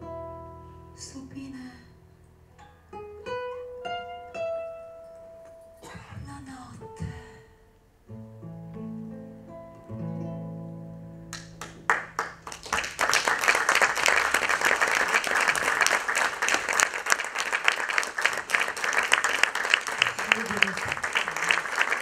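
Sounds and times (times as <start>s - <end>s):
audience applause: 11.4s - 22.0s.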